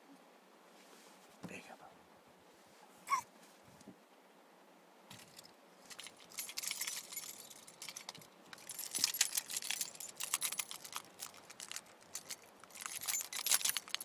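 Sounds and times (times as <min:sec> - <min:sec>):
small hard objects jingling: 0:05.1 - 0:14.0.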